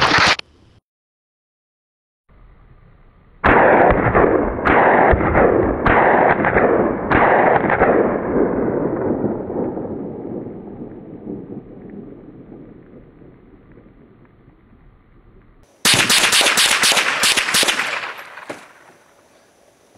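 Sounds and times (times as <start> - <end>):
rifle shots with echo: 3.4 - 10.7, 15.8 - 19.1.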